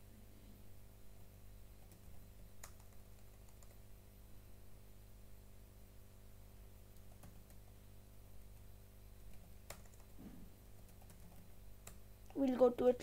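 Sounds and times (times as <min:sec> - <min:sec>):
steady low hum: 0:00.0 - 0:13.0
keyboard keystrokes: 0:09.3 - 0:10.2.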